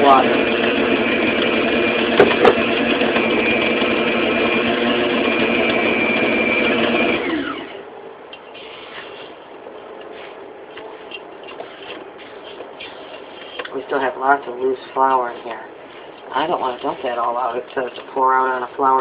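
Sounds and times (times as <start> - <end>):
stand mixer kneading dough: 0.0 - 7.8
mixer motor winding down: 0.0 - 7.9.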